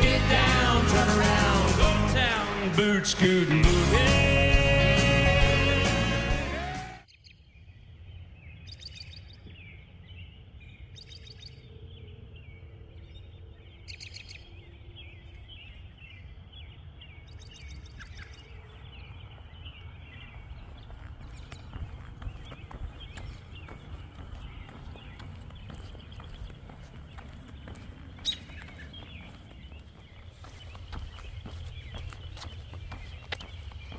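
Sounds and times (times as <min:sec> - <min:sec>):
birds chirping and calling: 0:07.1 - 0:33.9.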